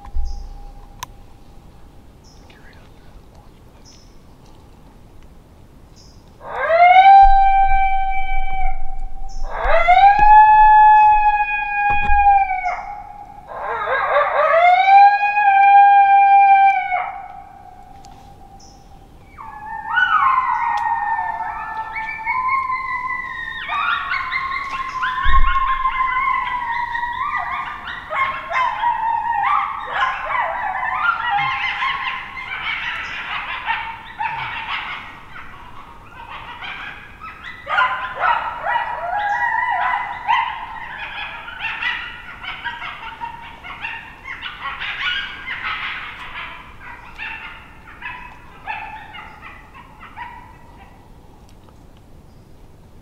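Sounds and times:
coyotes howling and yipping: 0:00.0 - 0:02.5, 0:06.4 - 0:51.4.

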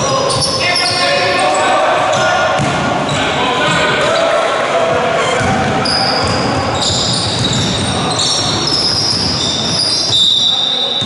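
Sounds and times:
ball bouncing: 0:02.6 - 0:02.9, 0:05.4 - 0:09.4
trainers squeaking on wooden floor: 0:05.2 - 0:11.0.

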